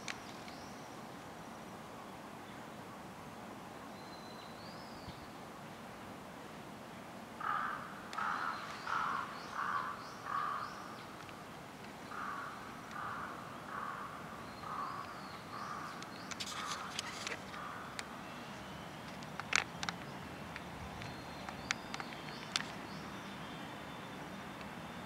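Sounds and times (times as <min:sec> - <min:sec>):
crow cawing: 0:07.4 - 0:10.8, 0:12.1 - 0:16.0, 0:17.5 - 0:18.0.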